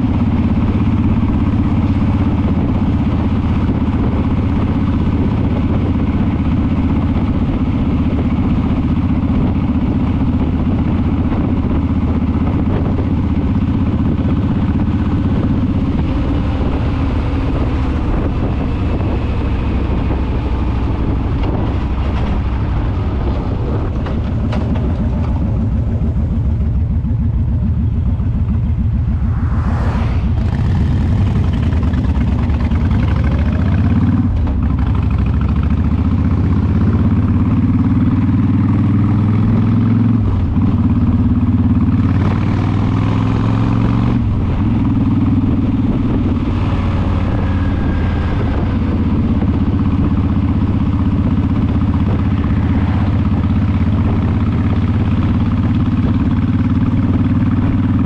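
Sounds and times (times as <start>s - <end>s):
motorcycle engine running: 0.0s - 58.0s
wind noise: 0.0s - 58.0s
brief whoosh: 28.7s - 32.3s, 46.2s - 50.1s.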